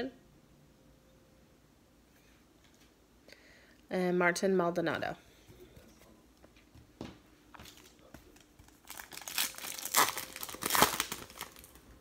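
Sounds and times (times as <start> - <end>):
foil wrapper tearing and crinkling: 8.6 - 11.8.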